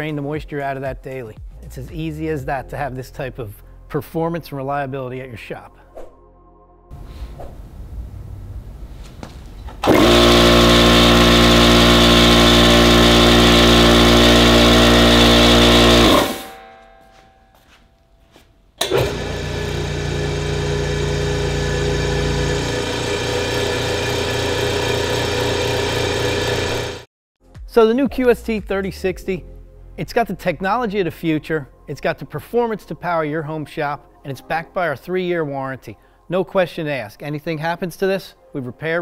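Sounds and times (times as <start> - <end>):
loud piston air compressor running: 9.8 - 16.6, 18.8 - 27.1.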